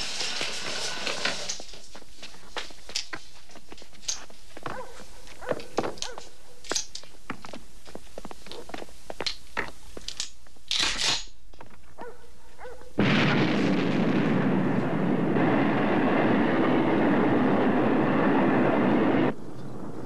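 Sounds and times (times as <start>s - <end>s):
rifle being handled: 5.5s - 7.2s, 10.0s - 11.8s
rocket launch roar: 13.0s - 20.0s.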